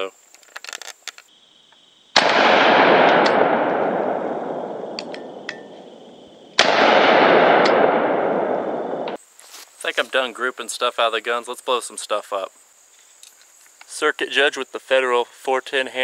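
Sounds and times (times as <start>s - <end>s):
revolver gunshots: 2.2s - 9.2s.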